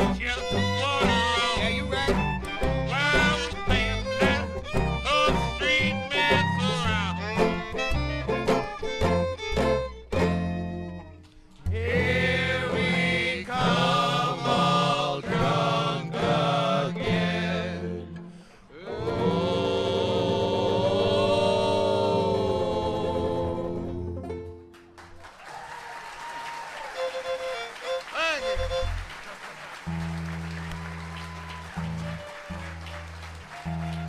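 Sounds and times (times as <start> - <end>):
string band playing: 0.0 - 25.0, 26.8 - 34.0
voices singing in harmony: 11.8 - 24.2
applause: 24.7 - 34.0.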